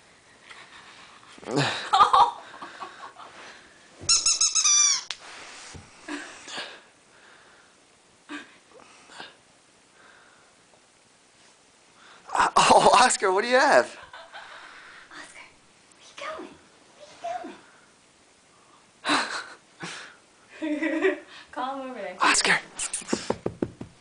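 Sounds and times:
high-pitched toy squeaks: 4.1 - 5.1.

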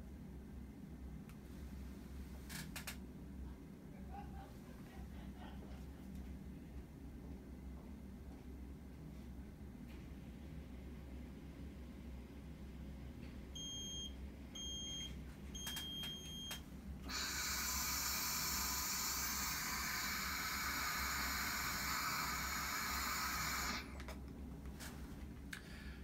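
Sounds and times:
breath monitor beeps: 13.6 - 23.8
person exhaling hard into tube: 17.1 - 24.0.

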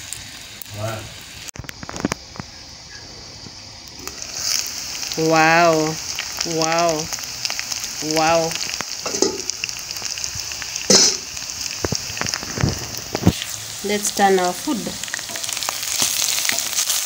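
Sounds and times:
meat and onions sizzling in oil: 0.0 - 17.0.

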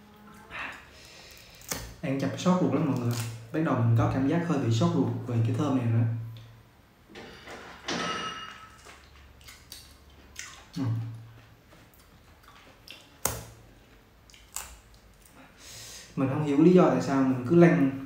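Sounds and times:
person chewing: 0.6 - 2.0, 8.8 - 15.6
fruit handling: 1.0 - 3.7.

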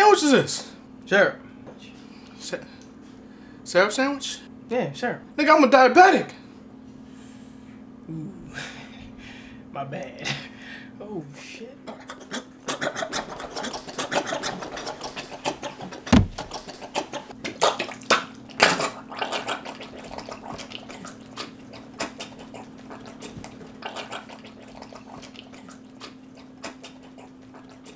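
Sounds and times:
steady low hum: 6.3 - 12.6
body thudding onto tiled floor: 16.1 - 16.6
scuffling and knocks: 16.1 - 16.6.

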